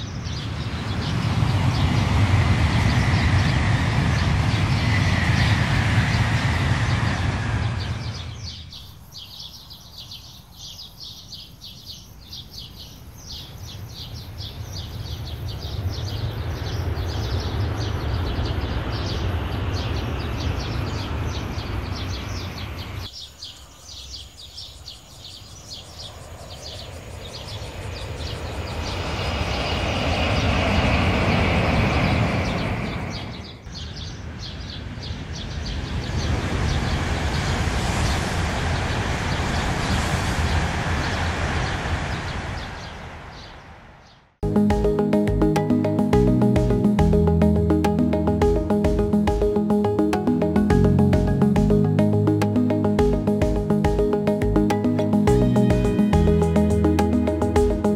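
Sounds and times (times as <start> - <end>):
high-speed trains passing: 0.0 - 8.8, 13.1 - 23.1, 25.6 - 57.9.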